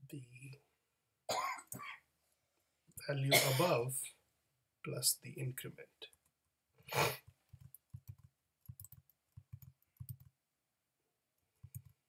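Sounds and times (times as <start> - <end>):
keyboard and mouse clicking: 7.5 - 10.3, 11.6 - 12.0.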